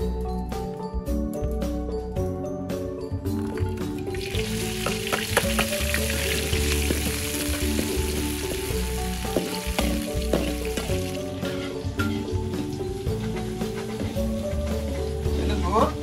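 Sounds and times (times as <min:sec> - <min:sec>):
garlic sizzling in hot oil: 0:04.0 - 0:16.0
metal spatula scraping a wok: 0:11.3 - 0:15.6.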